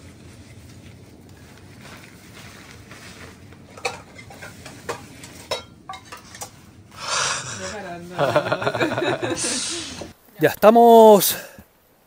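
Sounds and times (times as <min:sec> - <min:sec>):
low steady background noise: 0:00.0 - 0:12.0
cookware clinking and knocking: 0:03.8 - 0:06.6.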